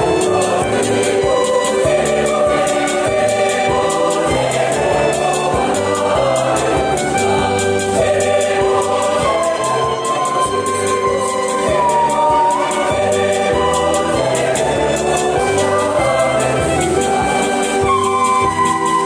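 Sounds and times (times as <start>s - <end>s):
keyboard accompaniment with beat: 0.0s - 19.0s
mixed choir singing: 0.0s - 19.0s.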